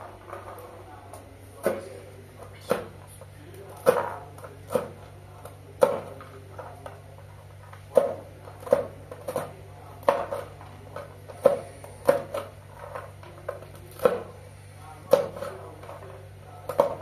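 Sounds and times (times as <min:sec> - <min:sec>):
low steady hum: 0:00.0 - 0:17.0
knife chopping on cutting board: 0:01.6 - 0:01.9, 0:03.7 - 0:05.0, 0:05.8 - 0:06.2, 0:07.9 - 0:10.6, 0:11.3 - 0:13.0, 0:13.8 - 0:14.4, 0:15.0 - 0:15.8.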